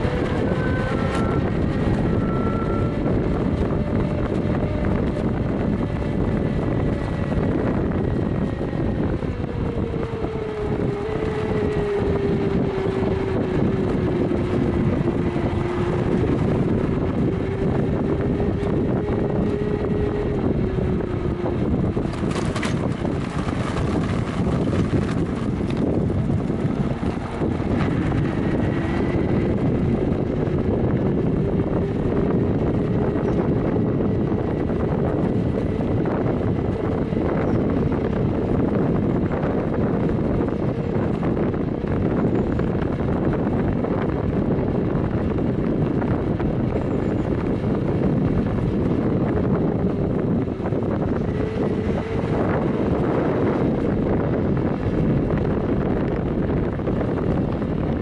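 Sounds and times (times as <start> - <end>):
electric motor whining: 0.0 - 44.5
wind and road noise: 0.0 - 58.0.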